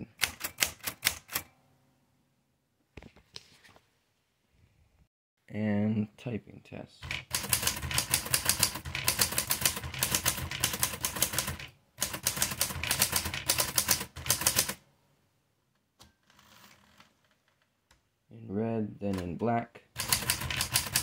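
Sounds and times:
typewriter keystrokes: 0:00.2 - 0:01.5, 0:07.0 - 0:14.8, 0:20.0 - 0:21.0.

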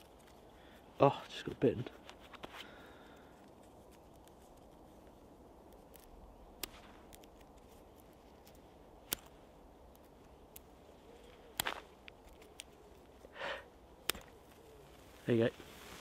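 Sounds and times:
match scraping strike paper: 0:03.5 - 0:10.7
sharp clicks: 0:05.7 - 0:10.7.

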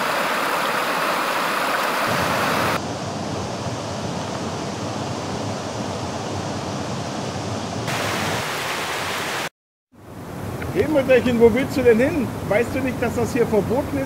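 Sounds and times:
stream rushing over rocks: 0:00.0 - 0:02.8, 0:07.9 - 0:09.5.

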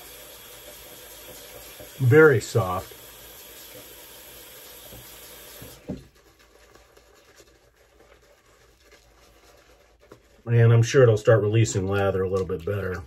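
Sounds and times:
running water hiss: 0:00.0 - 0:06.1
shaving brush rubbing lather: 0:00.0 - 0:13.0.

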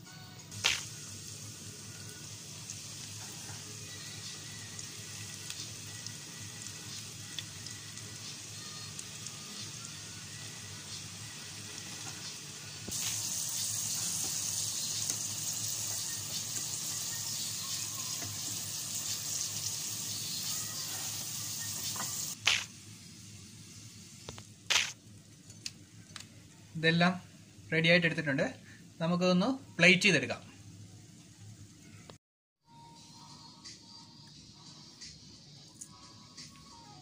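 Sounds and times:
onion rings deep-frying in oil: 0:00.5 - 0:25.5.

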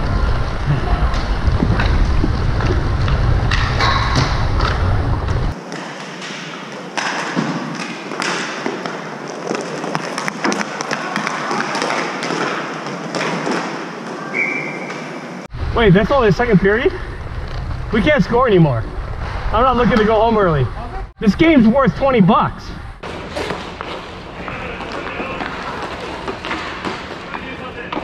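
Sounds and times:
low rumble on microphone: 0:00.0 - 0:05.6, 0:15.5 - 0:21.2
inline skates rolling: 0:00.0 - 0:15.4, 0:23.0 - 0:28.0
hockey sticks and puck knocking: 0:05.6 - 0:13.9, 0:23.0 - 0:28.0.

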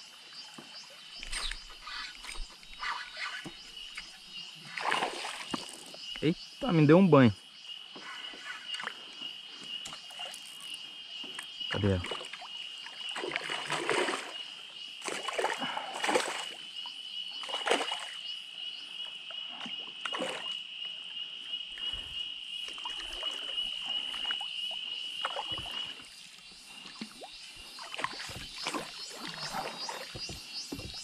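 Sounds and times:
water splashing around kayak: 0:00.4 - 0:06.1, 0:11.7 - 0:16.7, 0:17.4 - 0:18.3, 0:19.6 - 0:20.6, 0:22.6 - 0:31.0.

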